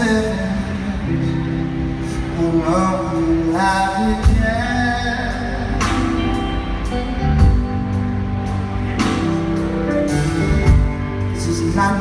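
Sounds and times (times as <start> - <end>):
man singing: 0.0 - 6.4, 11.2 - 12.0
drums: 0.0 - 12.0
electric guitar: 0.0 - 12.0.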